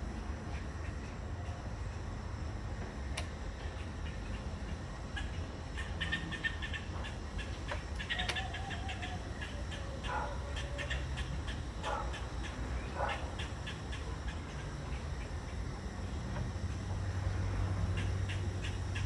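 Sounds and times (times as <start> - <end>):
wavering animal calls: 5.1 - 15.3.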